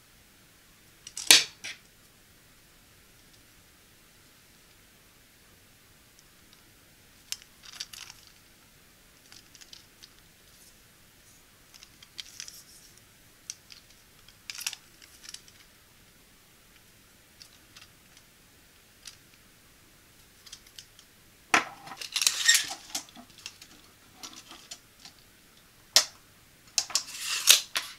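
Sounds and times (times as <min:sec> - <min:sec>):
plastic hanger parts clicking: 0:26.8 - 0:27.9.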